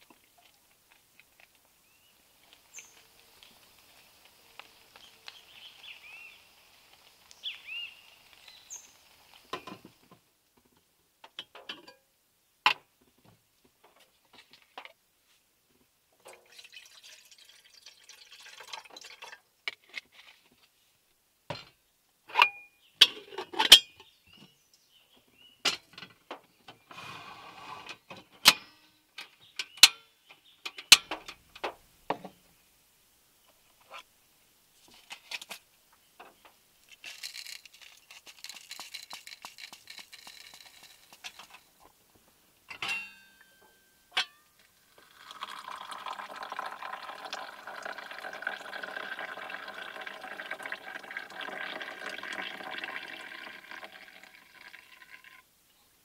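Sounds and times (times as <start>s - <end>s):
water poured into kettle: 16.3s - 19.4s, 44.8s - 55.4s
kettle and bottle clinking: 16.3s - 19.8s, 36.9s - 41.6s, 42.7s - 55.4s.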